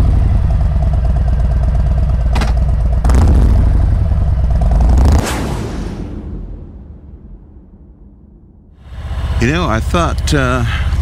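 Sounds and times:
motorcycle engine rumbling: 0.0 - 5.1, 8.8 - 11.0.

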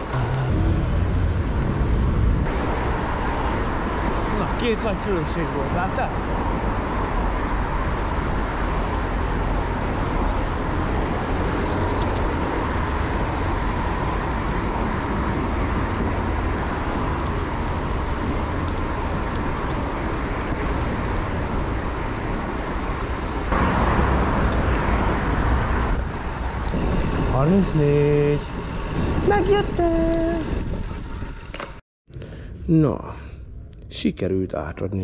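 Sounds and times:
city traffic noise: 0.0 - 35.0
wind rumbling on microphone: 5.6 - 31.6.

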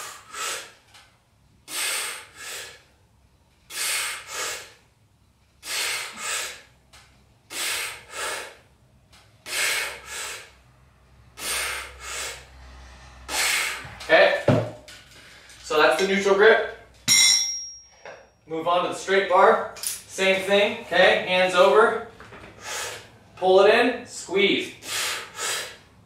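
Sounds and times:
man breathing forcefully: 0.0 - 0.9, 1.6 - 14.1, 14.8 - 15.7, 22.5 - 23.3, 24.7 - 26.0.

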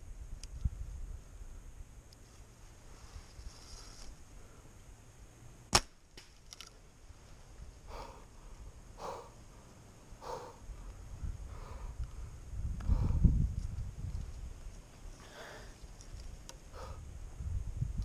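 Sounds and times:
bow string release crack: 5.7 - 6.8.

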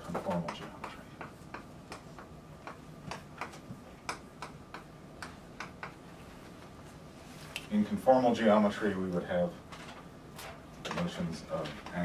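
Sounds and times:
chalk tapping on blackboard: 0.1 - 6.0.

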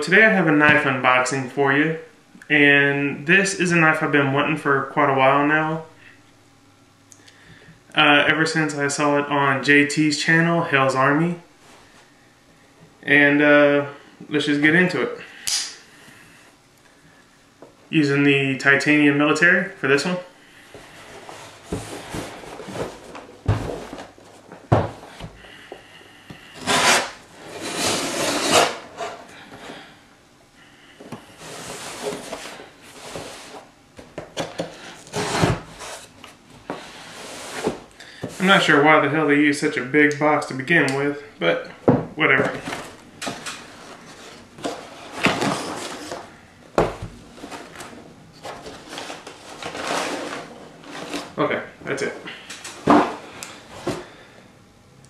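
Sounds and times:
cardboard box scraping rustles: 20.8 - 24.1, 31.3 - 33.7, 43.7 - 46.3, 47.4 - 51.4
cardboard box scraping and rustling: 26.6 - 29.2, 31.4 - 33.6, 35.0 - 36.1, 43.7 - 46.3, 48.5 - 51.4.

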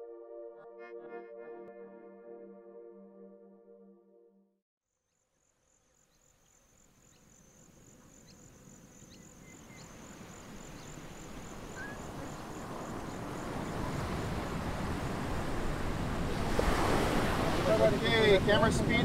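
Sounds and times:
high pulsing insect trill: 5.1 - 15.9
ocean surf rushing: 9.9 - 19.0.

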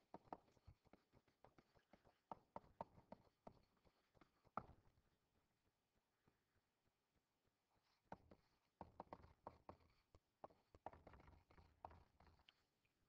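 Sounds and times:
stylus tapping and scratching screen: 0.1 - 4.7, 7.8 - 12.7.

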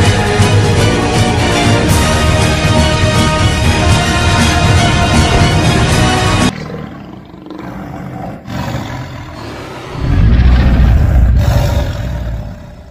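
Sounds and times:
background music: 0.0 - 6.9
monster roar: 6.4 - 12.9.

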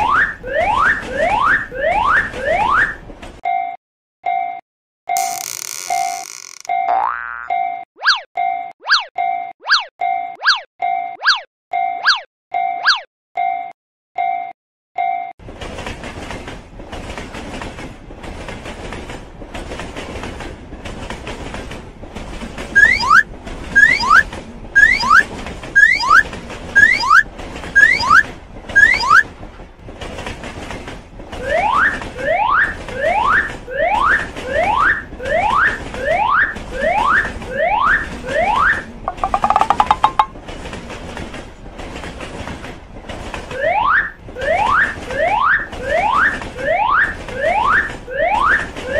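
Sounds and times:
train rumbling clatter: 0.8 - 3.4, 15.4 - 48.9
rising whistle glide: 22.8 - 23.2, 23.8 - 24.2
swooping alarm tone: 22.8 - 23.2, 23.8 - 24.2, 24.8 - 25.2, 25.8 - 26.2, 26.8 - 27.2, 27.8 - 28.2, 28.8 - 29.2, 39.1 - 40.3.

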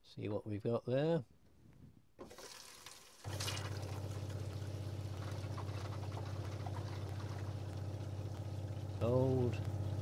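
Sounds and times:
water pump humming: 2.2 - 10.0
water running into basin: 2.2 - 10.0.

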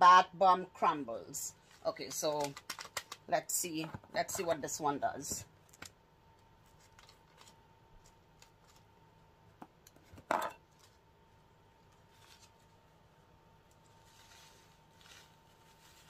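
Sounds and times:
foil packet rustling: 6.7 - 8.9, 11.9 - 12.9, 13.8 - 16.0
foil packet crinkling rip: 6.8 - 8.9.

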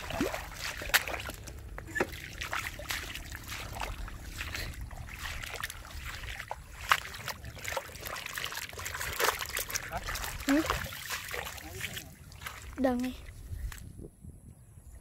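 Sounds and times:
low steady rumble: 0.0 - 10.9
splashing in muddy water: 0.0 - 13.9.

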